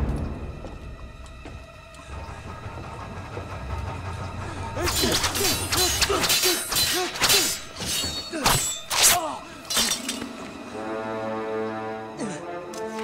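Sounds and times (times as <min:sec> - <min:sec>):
film music: 0:00.0 - 0:13.0
sharp metallic clashes and hits: 0:04.8 - 0:10.4.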